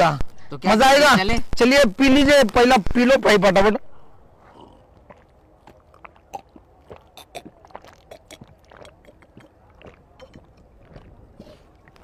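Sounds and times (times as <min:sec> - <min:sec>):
people gulping and sipping: 0:04.0 - 0:12.0.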